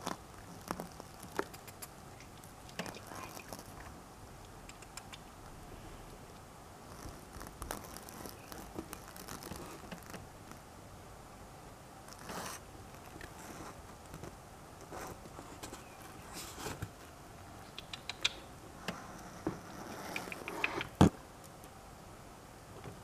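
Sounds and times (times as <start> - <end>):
small ticks: 0.0 - 5.3, 6.3 - 10.6, 17.6 - 21.8
rat scrambling over wood: 6.9 - 10.2.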